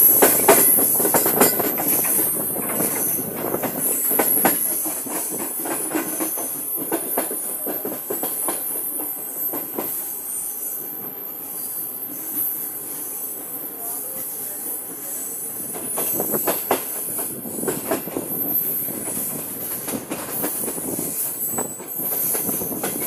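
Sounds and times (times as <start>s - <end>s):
train wheels clattering: 0.0s - 10.0s, 15.7s - 23.0s.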